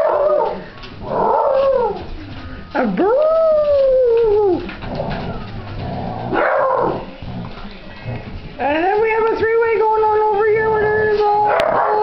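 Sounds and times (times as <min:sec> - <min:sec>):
puppy howling: 0:00.0 - 0:02.0, 0:03.0 - 0:04.7.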